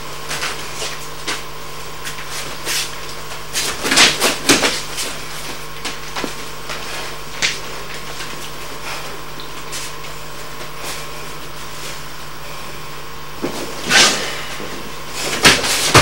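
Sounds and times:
steady hum and hiss: 0.0 - 16.0
feet scuffing and blows thudding: 13.4 - 16.0.

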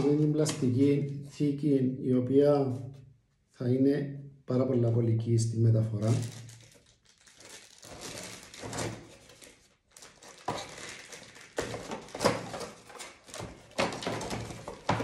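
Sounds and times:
plastic packaging rustling: 0.0 - 1.2, 5.9 - 15.0.

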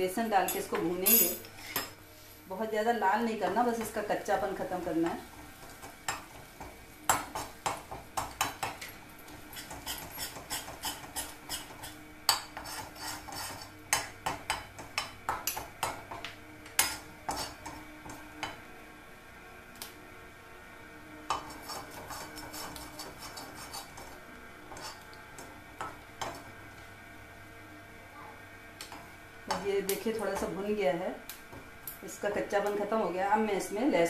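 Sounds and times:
metal spatula scraping a pan: 9.5 - 13.8, 16.8 - 17.8, 21.3 - 25.1.

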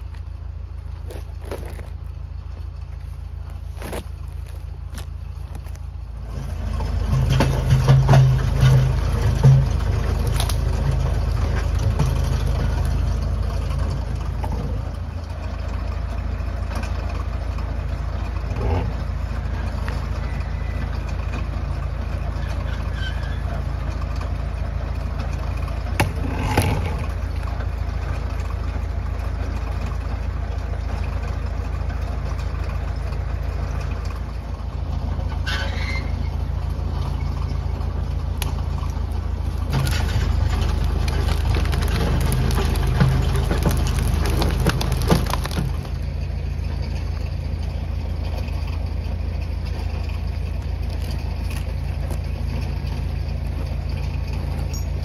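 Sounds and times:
tractor engine running: 0.0 - 55.0
log snapping through brush: 1.0 - 2.0, 3.5 - 5.9, 10.3 - 10.6, 39.6 - 46.0.

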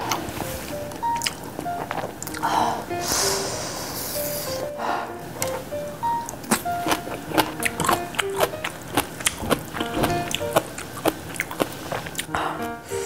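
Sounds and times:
plucked notes: 4.6 - 10.8.

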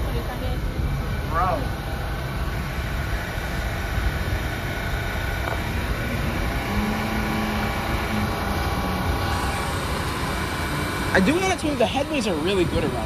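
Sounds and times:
subway train equipment humming: 0.0 - 13.0.

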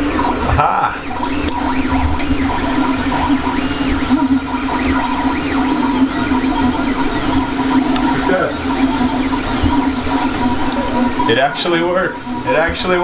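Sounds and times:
printer stepper motors whining: 0.0 - 13.0
steady hum: 0.0 - 13.0.

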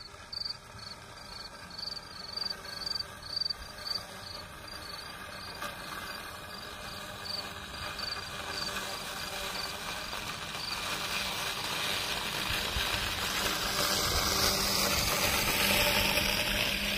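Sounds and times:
robotic lawn mower humming: 0.0 - 16.9
faint insect chirps: 0.3 - 8.8.

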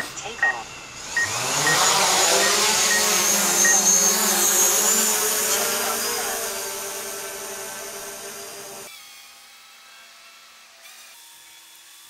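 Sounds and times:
drone motors whining: 0.0 - 9.0.

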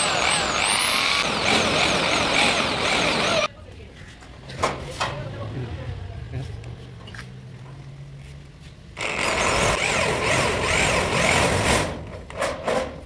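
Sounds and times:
electric drill boring through metal: 0.0 - 3.5, 9.0 - 11.6.

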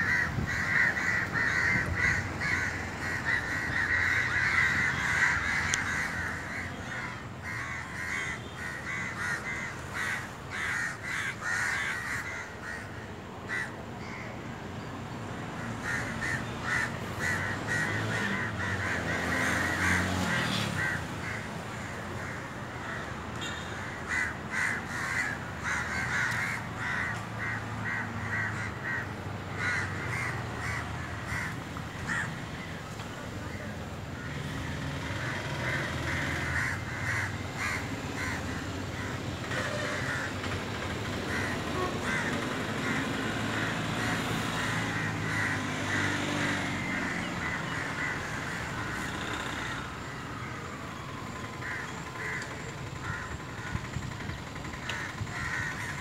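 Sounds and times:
crows cawing: 0.0 - 14.5, 15.5 - 56.0.

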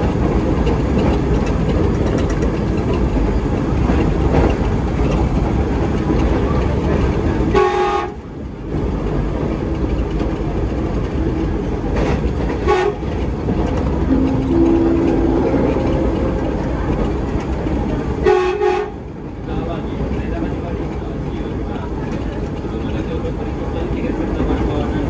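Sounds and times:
train wheels rumbling on rail: 0.0 - 25.0
train horn blast: 7.5 - 8.2, 12.6 - 13.1, 14.1 - 17.4, 18.2 - 19.0.

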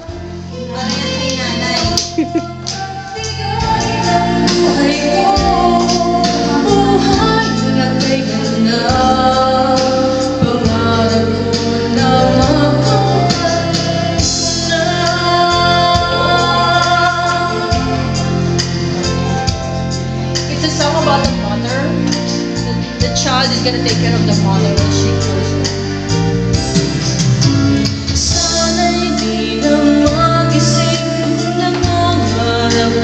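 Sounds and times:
woman singing into microphone: 0.0 - 19.3, 28.2 - 33.0
backing track music: 0.0 - 33.0.

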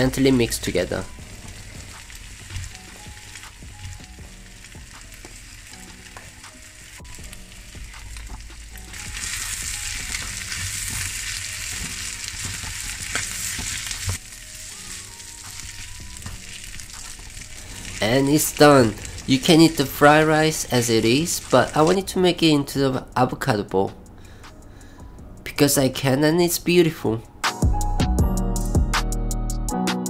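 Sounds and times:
rice sizzling in pan: 0.0 - 22.1.

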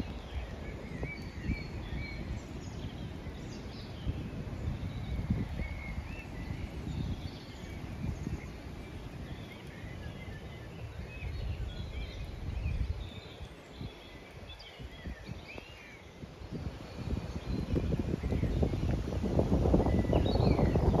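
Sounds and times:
birds chirping and whistling: 0.0 - 21.0
storm wind gusting on microphone: 0.0 - 21.0.

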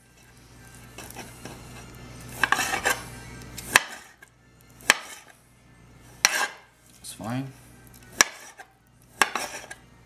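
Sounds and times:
knife scraping and tapping glass: 2.4 - 3.0, 8.2 - 9.8.

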